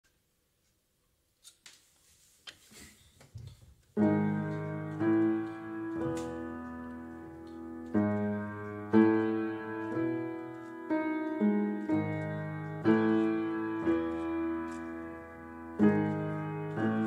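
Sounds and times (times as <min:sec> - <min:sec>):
slow piano chords: 0:04.0 - 0:17.0.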